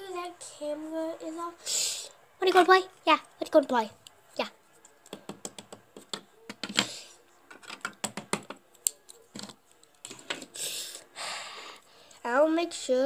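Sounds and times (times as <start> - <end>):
plastic toys clicking: 7.5 - 10.4.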